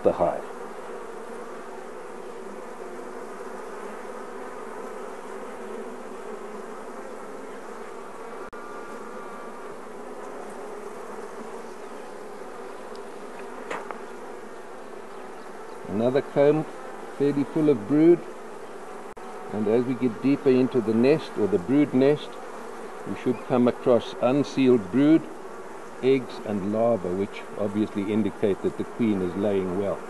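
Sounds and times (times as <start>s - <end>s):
honeybees humming: 0.0s - 30.0s.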